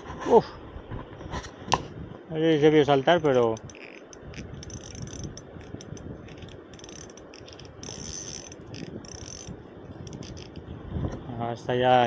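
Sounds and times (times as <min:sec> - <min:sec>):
fishing reel ratchet clicking: 0:03.1 - 0:10.6.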